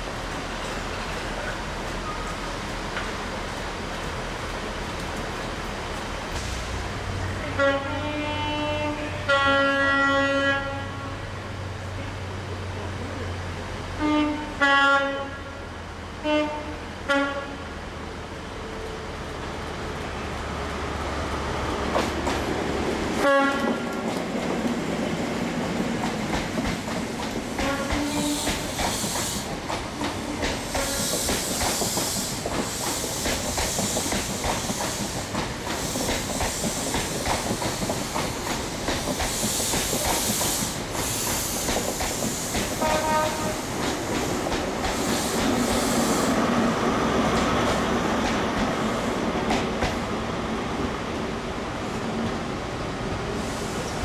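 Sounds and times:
diesel train engine under load: 0.0s - 14.6s, 15.2s - 54.0s
train horn toots: 7.4s - 11.3s, 14.0s - 15.6s, 16.2s - 17.6s, 23.2s - 24.0s, 27.6s - 28.7s, 30.4s - 31.1s, 42.8s - 43.7s
train wheels clattering over rail joints: 23.6s - 46.2s.

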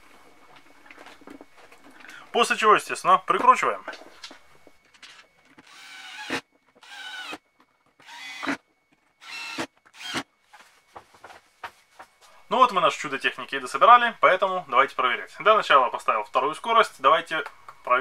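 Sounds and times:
electric screwdriver whining: 5.6s - 7.4s, 8.0s - 8.6s, 9.2s - 10.3s.

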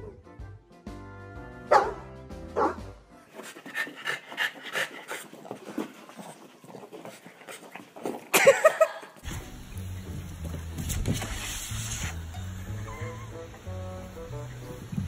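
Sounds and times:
background music: 0.0s - 5.3s, 9.2s - 15.0s
dog huffing breaths: 3.2s - 8.3s.

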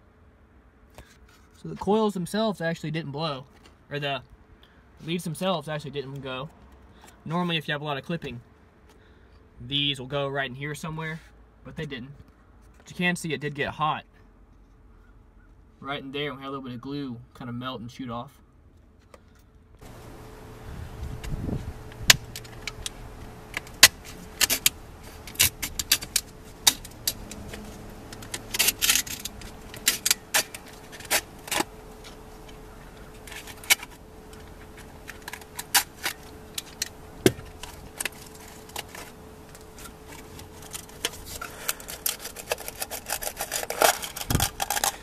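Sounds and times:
faint steady hum: 0.0s - 45.0s
blade cutting paper and plastic: 21.2s - 32.2s, 39.8s - 45.0s.

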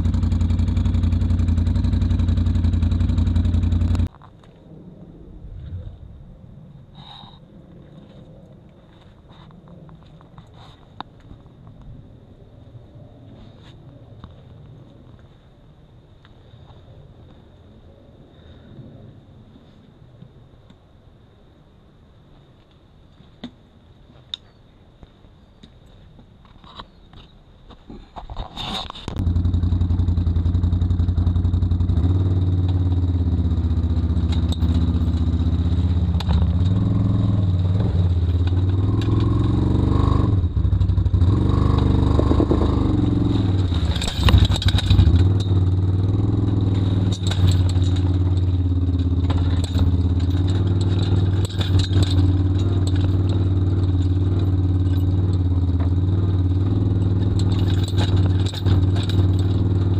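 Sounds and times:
atv engine running: 0.0s - 4.1s, 29.1s - 59.9s
trailer rattles and knocks: 29.2s - 59.9s.

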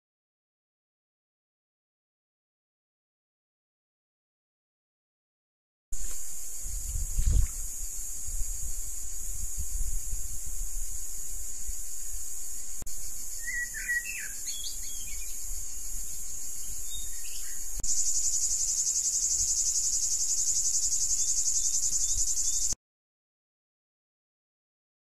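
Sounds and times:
cicadas droning: 6.0s - 22.8s
bird chirps: 12.0s - 22.8s.

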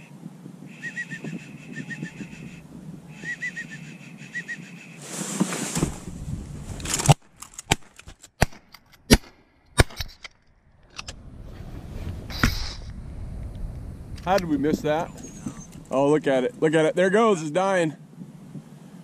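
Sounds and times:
short high whistles: 0.7s - 5.0s, 15.1s - 15.8s.

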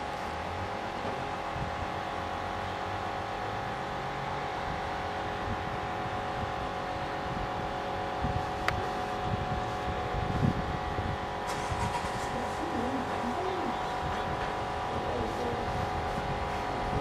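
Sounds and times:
train approaching: 11.3s - 16.0s.

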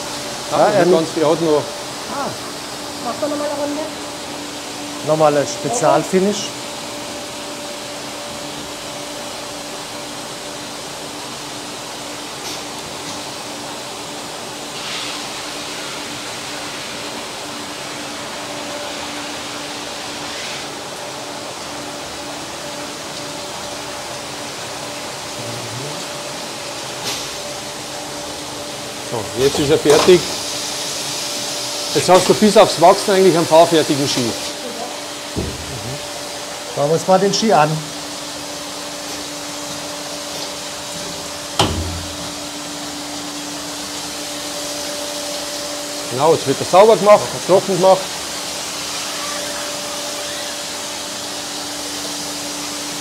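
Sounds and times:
machine grinding with water spray: 12.3s - 53.0s
sharp knock: 35.4s - 35.8s, 41.6s - 42.3s.

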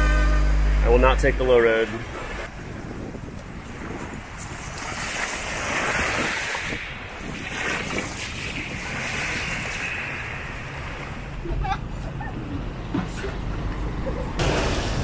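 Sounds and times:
surf washing onto shore: 1.6s - 11.6s
wind buffeting microphone: 2.0s - 14.0s.

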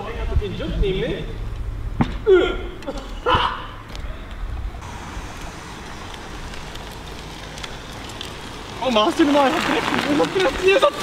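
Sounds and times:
steady rushing noise: 3.8s - 11.0s.

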